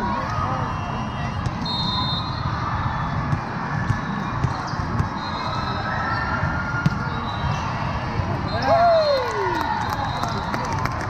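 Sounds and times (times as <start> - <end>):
crowd chatter: 0.0 - 11.0.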